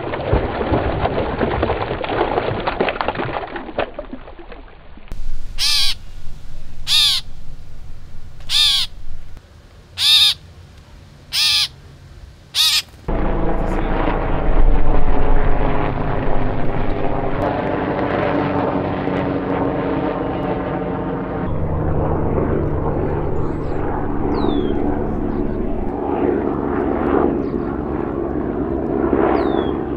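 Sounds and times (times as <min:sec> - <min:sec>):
aircraft flying overhead: 0:05.1 - 0:09.4, 0:13.1 - 0:29.9
bird cawing: 0:05.2 - 0:09.4, 0:10.0 - 0:10.4, 0:11.3 - 0:11.7, 0:12.5 - 0:13.0.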